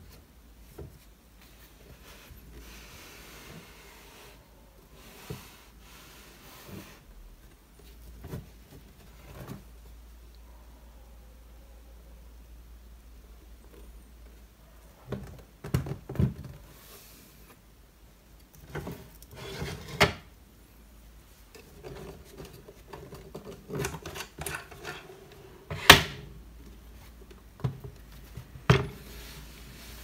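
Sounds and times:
wood sliding and rubbing: 18.8 - 20.1.

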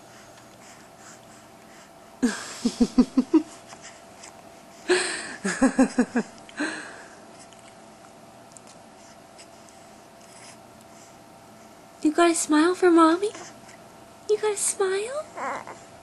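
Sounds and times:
person laughing: 2.2 - 3.5, 4.9 - 6.8.

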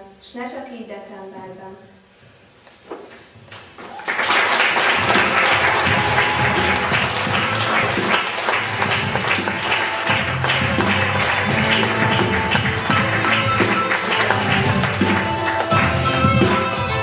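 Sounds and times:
applause: 3.8 - 17.0
upbeat music with steady beat: 4.9 - 17.0.

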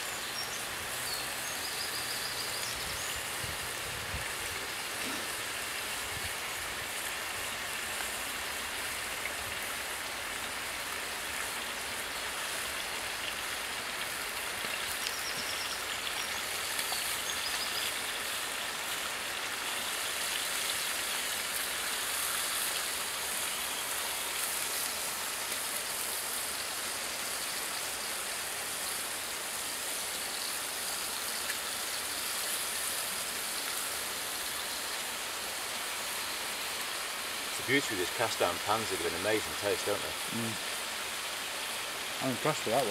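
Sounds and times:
bacon sizzling in a pan: 0.0 - 42.9.

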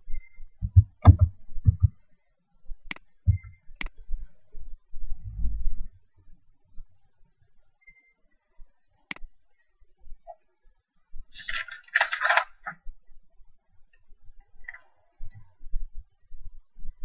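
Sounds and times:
sharp click: 2.9 - 4.0.

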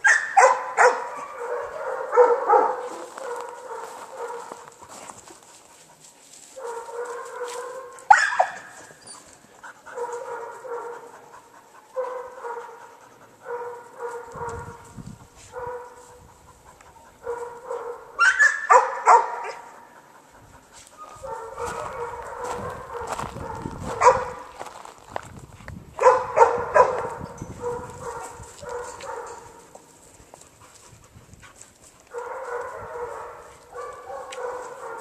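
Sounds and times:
dog yelping: 0.0 - 4.5, 7.7 - 9.3, 17.3 - 19.7.

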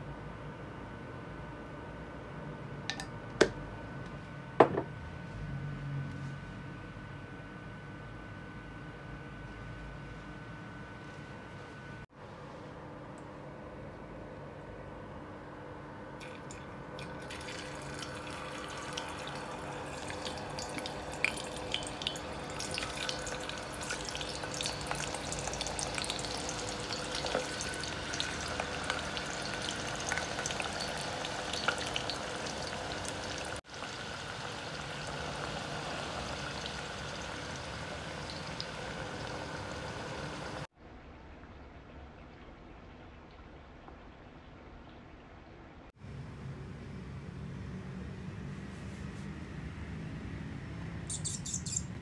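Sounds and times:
fries sizzling in hot oil: 17.1 - 40.7.

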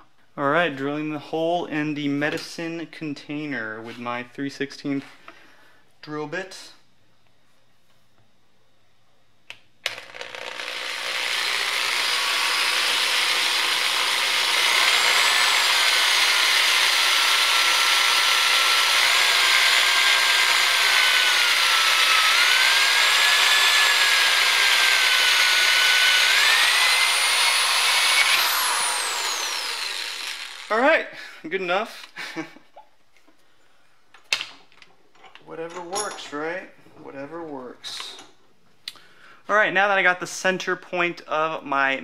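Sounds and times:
drill clicks: 9.8 - 30.7
power drill drilling plastic: 9.9 - 30.7.

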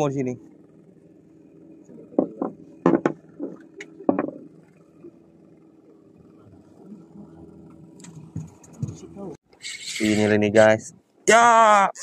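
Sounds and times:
boat engine idling: 0.0 - 12.0
sharp knocks and bumps: 2.1 - 4.6, 8.0 - 9.2.

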